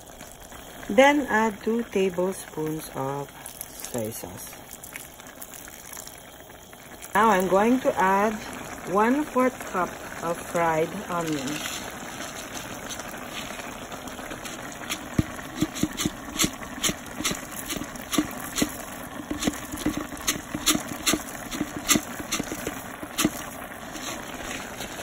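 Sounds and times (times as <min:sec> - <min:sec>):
stew bubbling and popping: 0:00.0 - 0:25.0.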